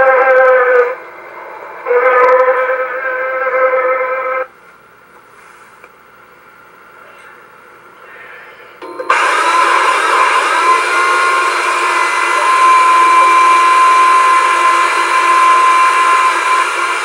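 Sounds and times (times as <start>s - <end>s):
electric power saw whining: 8.8s - 17.0s.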